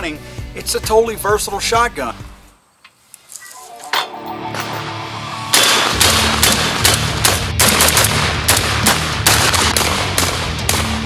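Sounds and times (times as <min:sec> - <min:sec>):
background music: 0:00.0 - 0:02.6, 0:03.4 - 0:11.0
shotgun firing rapid shots: 0:05.5 - 0:11.0.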